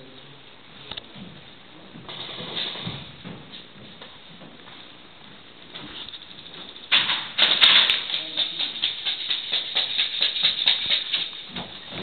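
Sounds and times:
airsoft guns firing: 6.9s - 11.4s.

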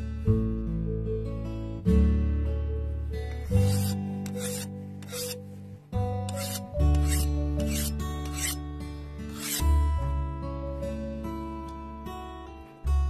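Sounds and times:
acoustic guitar music: 0.0s - 13.0s
hand file scraping steel blade: 3.4s - 5.5s, 6.3s - 8.6s, 9.3s - 9.7s.

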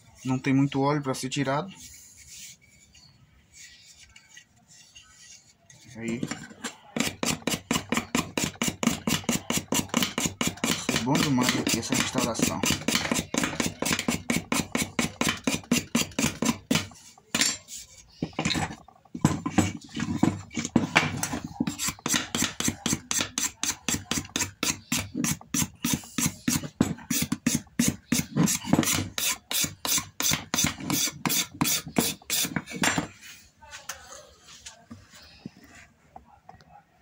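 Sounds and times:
metal scraper scraping wood: 4.2s - 33.0s.

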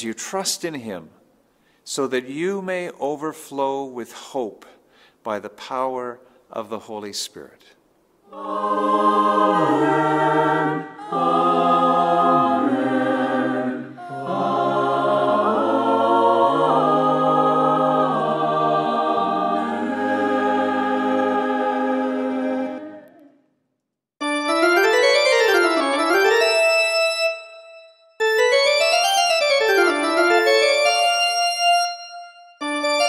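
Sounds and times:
choir singing sustained chords: 8.3s - 23.3s
organ accompaniment: 24.2s - 33.0s
piano playing arpeggios: 24.2s - 33.0s.

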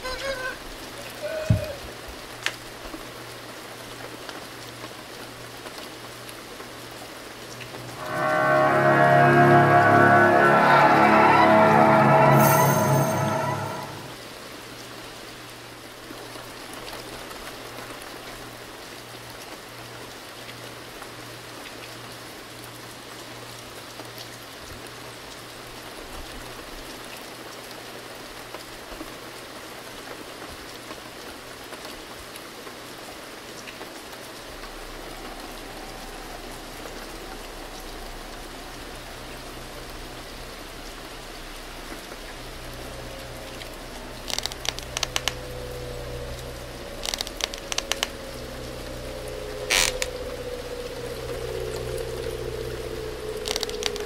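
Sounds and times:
low hum: 7.4s - 14.2s, 34.4s - 54.0s
faint ticks: 53.4s - 54.0s.

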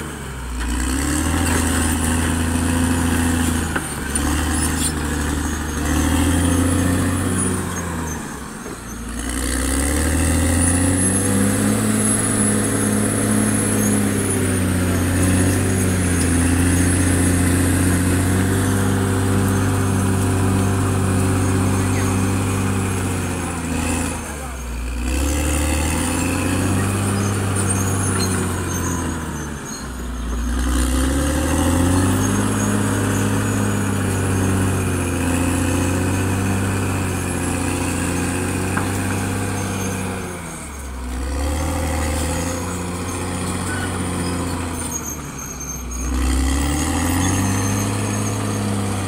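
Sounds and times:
bulldozer diesel engine under load: 0.0s - 49.0s.

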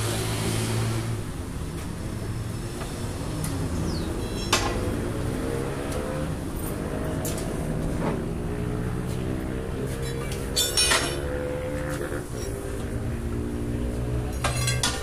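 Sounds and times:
tyre levers clinking on steel rim: 10.0s - 11.3s, 14.4s - 15.0s.

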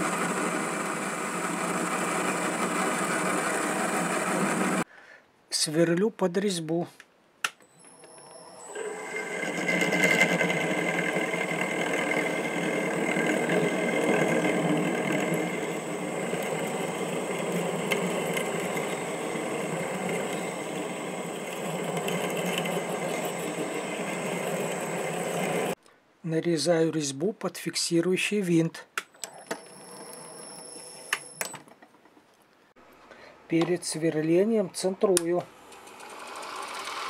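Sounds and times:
metal lathe drilling steel: 0.0s - 4.8s, 8.2s - 25.8s, 35.6s - 37.0s
faint high whine: 7.6s - 25.8s.

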